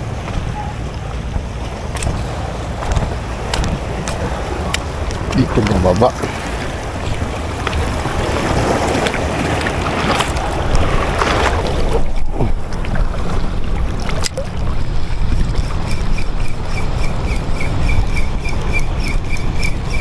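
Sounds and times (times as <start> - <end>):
small waves lapping: 0.0 - 20.0
wind buffeting microphone: 0.0 - 20.0
person talking: 5.3 - 6.4
fishing reel ticking: 15.3 - 20.0.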